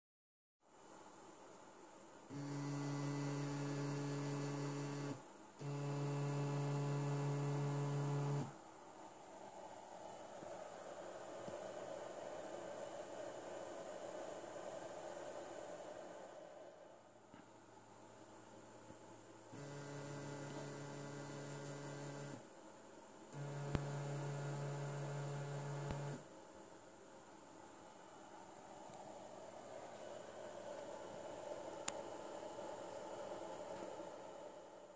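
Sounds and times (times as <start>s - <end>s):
stepper motor humming: 2.3s - 8.6s, 19.5s - 22.4s, 23.4s - 26.2s.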